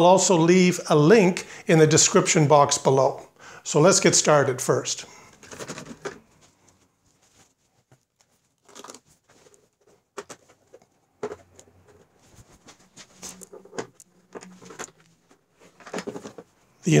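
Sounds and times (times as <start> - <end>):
faint rustling: 5.1 - 16.8
plastic cover clicks and knocks: 15.8 - 16.5.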